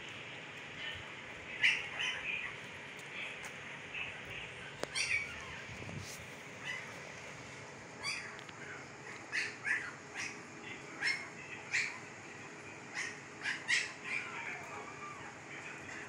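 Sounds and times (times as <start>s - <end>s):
puppies squeaking and whimpering: 4.8s - 5.9s, 6.6s - 7.0s, 8.0s - 8.4s, 9.0s - 10.4s, 12.9s - 15.3s.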